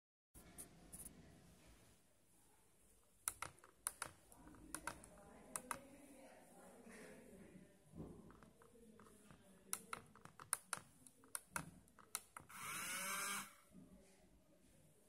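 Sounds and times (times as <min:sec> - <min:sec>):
keypad buttons clicking: 0:03.3 - 0:05.8, 0:09.7 - 0:12.5
small motor whirring: 0:12.4 - 0:13.6.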